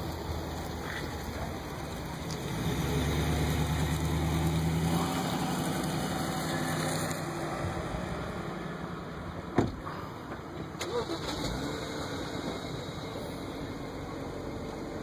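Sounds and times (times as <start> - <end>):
vehicle engine running: 0.0 - 9.5.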